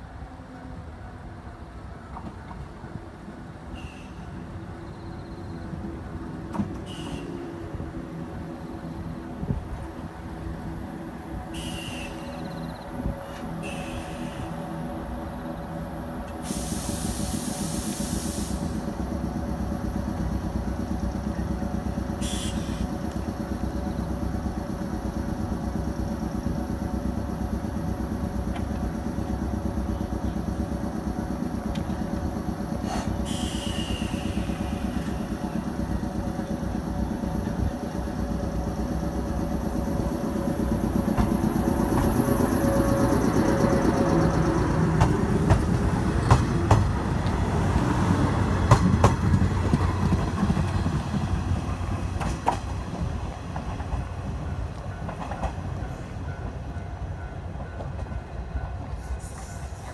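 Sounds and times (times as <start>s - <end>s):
electric train humming: 0.0s - 59.9s
hiss of air: 11.5s - 12.2s, 13.2s - 14.7s, 16.3s - 19.3s, 22.1s - 23.0s, 32.7s - 36.3s, 58.9s - 59.9s.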